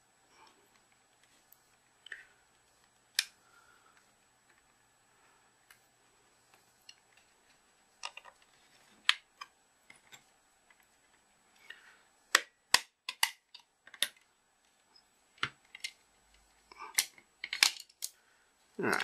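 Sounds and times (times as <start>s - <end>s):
plastic clicks and snaps: 2.9s - 3.4s, 8.0s - 14.3s.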